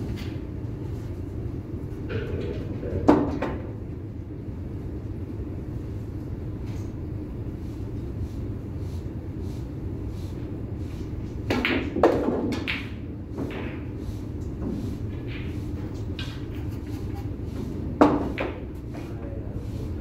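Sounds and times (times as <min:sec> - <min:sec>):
low room hum: 0:00.0 - 0:20.0
pool balls clacking: 0:02.0 - 0:03.8, 0:11.4 - 0:19.0.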